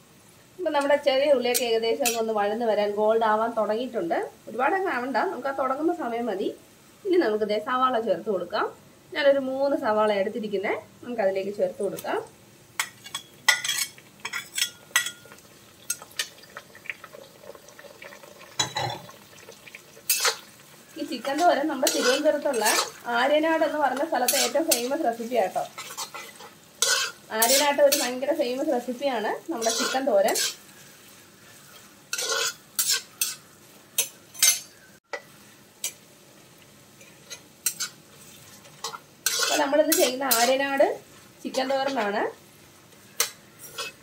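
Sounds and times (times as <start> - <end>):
onions sizzling in oil: 0.0 - 44.0
spatula clinking on metal pan: 12.8 - 16.0, 29.6 - 30.6, 32.1 - 33.4, 34.0 - 35.2, 38.8 - 40.6
metal spatula scraping a pan: 12.8 - 16.3, 20.1 - 34.8, 37.0 - 42.2, 43.1 - 44.0.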